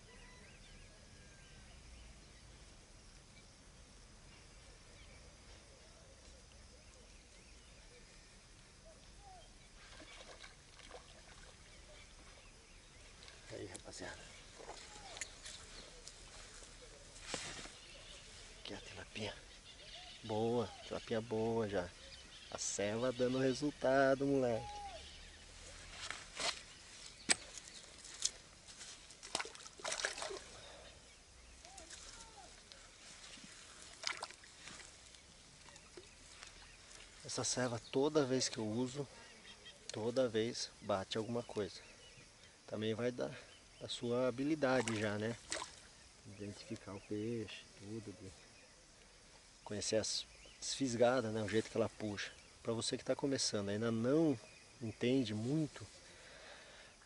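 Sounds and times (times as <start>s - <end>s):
faint bird chirps: 0.0s - 57.0s
water splashing and sloshing: 9.8s - 17.8s, 25.9s - 30.9s, 31.6s - 37.3s, 44.6s - 46.0s.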